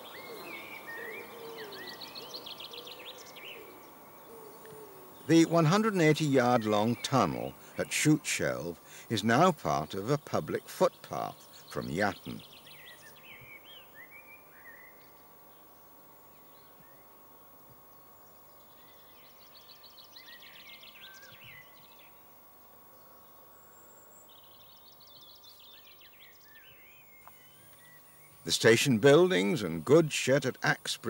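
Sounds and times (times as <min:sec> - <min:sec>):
songbird trilling: 0:00.0 - 0:15.2
low steady hiss: 0:00.0 - 0:31.0.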